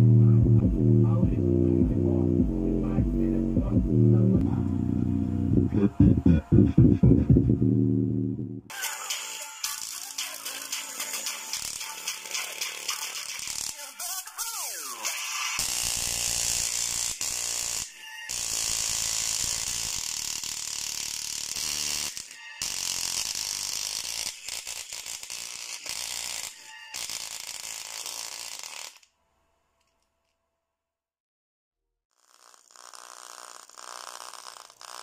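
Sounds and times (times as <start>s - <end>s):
speaker playing bass test tone: 0.0s - 8.7s.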